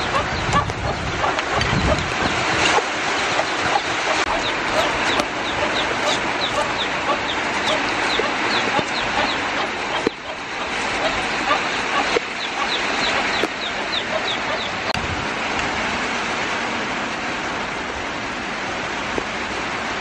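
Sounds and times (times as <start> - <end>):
chickens clucking: 0.0 - 15.0
chicks peeping: 0.0 - 15.0.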